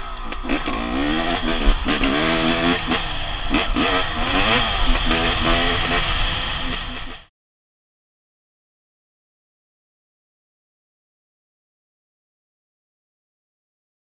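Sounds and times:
dirt bike engines revving: 0.0s - 7.3s
wind rush: 0.8s - 7.2s.

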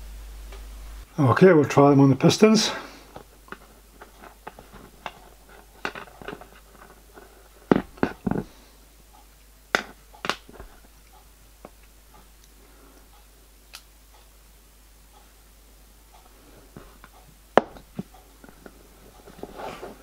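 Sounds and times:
hands handling metal parts: 3.1s - 8.6s.

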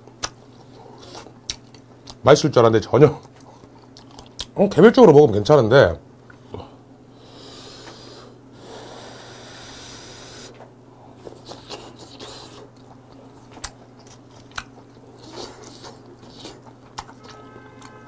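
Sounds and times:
person chewing food: 0.0s - 2.2s, 3.2s - 4.5s, 9.0s - 18.0s.

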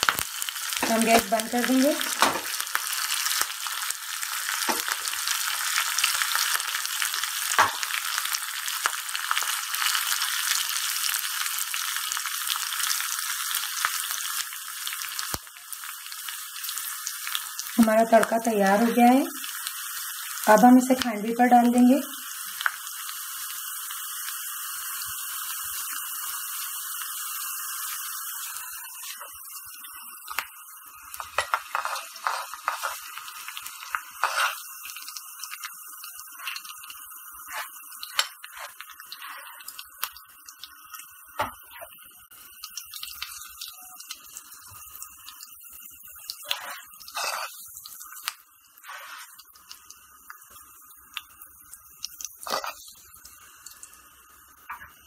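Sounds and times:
oil sizzling in a pan: 0.0s - 55.0s
spoon scraping pan and plate: 31.2s - 33.1s, 34.2s - 34.7s, 37.4s - 39.6s, 46.4s - 47.7s, 48.8s - 49.4s, 52.4s - 52.9s.

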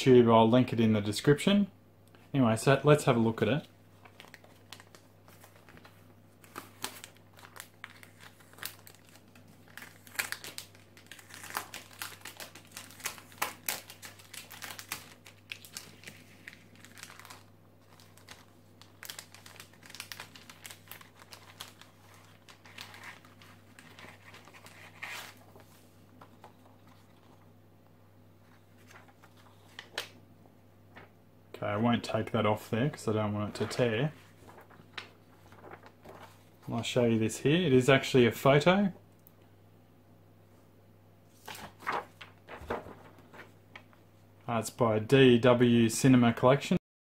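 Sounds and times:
plastic sleeve crinkling: 4.0s - 27.5s, 28.7s - 30.2s, 33.4s - 36.6s, 41.4s - 44.0s.

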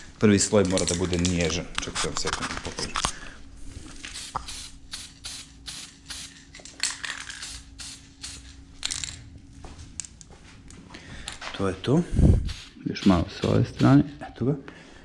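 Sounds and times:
faint steady hum: 0.0s - 15.0s
spray can hissing bursts: 4.1s - 6.4s, 7.4s - 8.6s, 12.2s - 14.0s.

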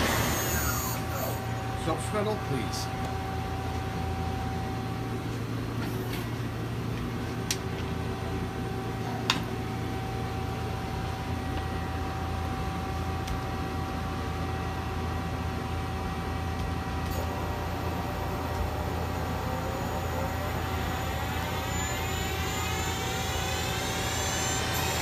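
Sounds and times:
lathe humming: 0.0s - 5.6s, 17.0s - 25.0s.

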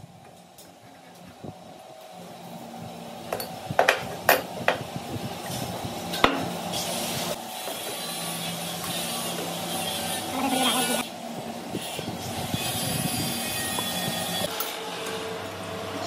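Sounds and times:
steady machine hum: 0.0s - 16.0s.

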